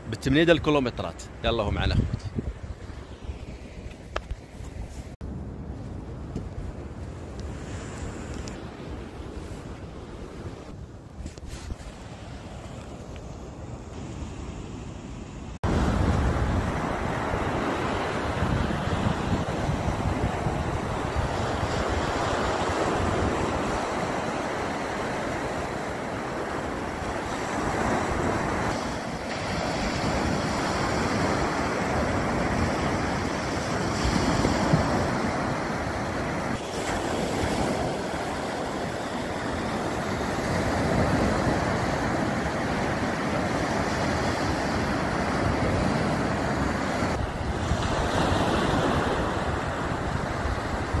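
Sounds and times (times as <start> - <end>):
sea waves breaking on shore: 6.8 - 51.0.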